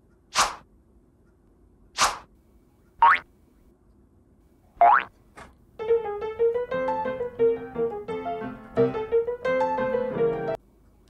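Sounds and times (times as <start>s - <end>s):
piano melody of quick notes: 5.8s - 10.6s.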